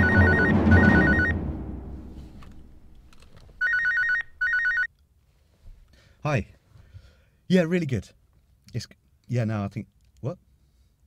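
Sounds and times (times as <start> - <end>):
phone ringing with warbling trill: 0.0 - 1.4, 3.6 - 4.9
loud low boom: 0.0 - 2.9.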